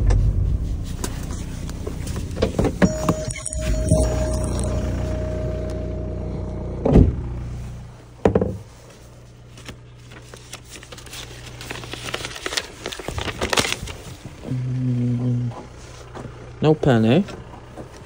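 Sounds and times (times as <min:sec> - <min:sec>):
car engine idling: 0:00.0 - 0:10.4, 0:14.1 - 0:18.0
car door shutting: 0:01.8 - 0:04.4, 0:06.8 - 0:07.3
paper rustling: 0:08.8 - 0:14.5.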